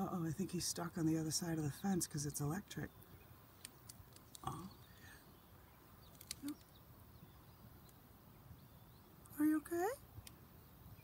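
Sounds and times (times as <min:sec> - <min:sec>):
faint outdoor ambience: 0:00.0 - 0:11.0
faint clicks: 0:03.0 - 0:04.9, 0:06.1 - 0:06.7, 0:10.2 - 0:10.4.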